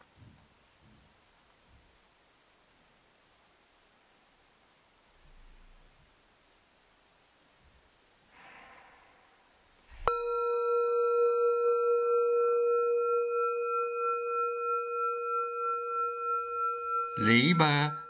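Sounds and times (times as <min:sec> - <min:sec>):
faint hiss: 0:00.0 - 0:10.1
singing bowl ringing: 0:10.0 - 0:18.0.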